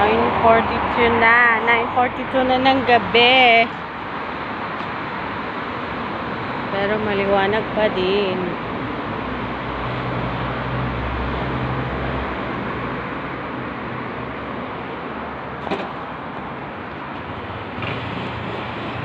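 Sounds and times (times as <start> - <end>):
city street traffic: 0.0 - 19.0
motor scooter moving off: 15.6 - 19.0.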